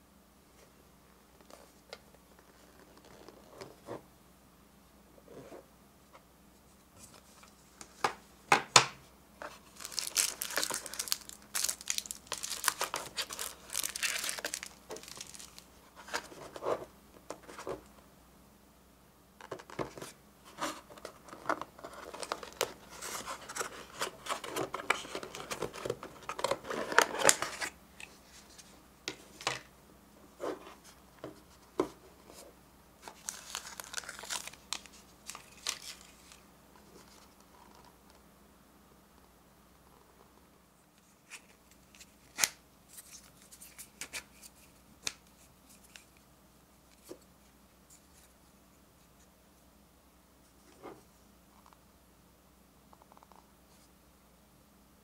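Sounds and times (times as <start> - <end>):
plastic packaging crinkling: 9.6 - 16.2, 33.0 - 36.4.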